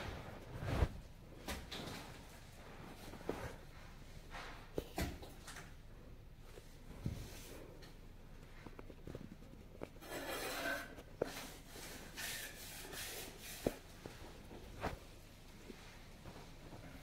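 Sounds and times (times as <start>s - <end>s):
denim fabric rubbing and rustling: 0.0s - 1.2s, 13.4s - 16.5s.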